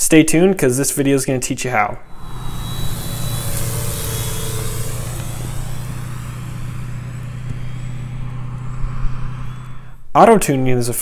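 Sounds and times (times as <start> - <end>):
even hiss: 2.0 - 10.0
drone propeller hum: 2.0 - 10.1.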